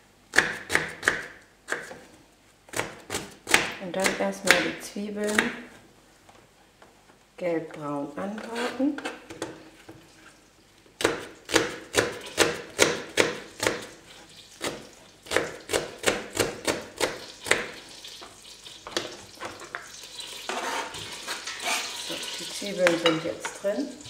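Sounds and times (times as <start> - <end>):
knife chopping on plastic board: 0.3 - 2.0, 2.7 - 5.7, 11.0 - 13.9
onion sizzling in hot fat: 13.4 - 24.0.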